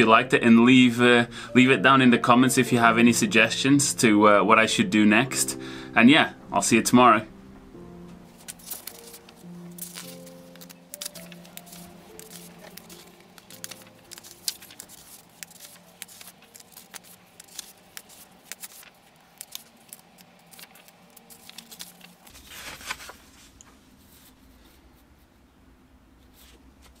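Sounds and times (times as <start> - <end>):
paper rustling on a table: 8.3 - 24.8.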